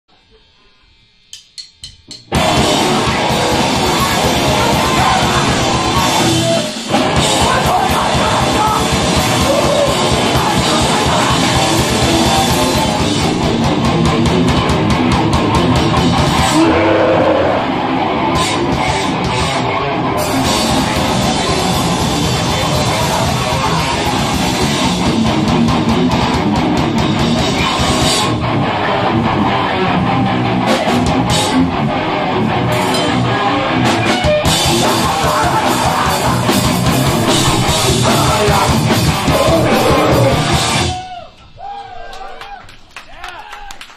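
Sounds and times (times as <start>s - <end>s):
drumstick clicks: 1.3s - 2.4s
drum kit: 1.4s - 41.2s
distorted electric guitar: 1.8s - 41.2s.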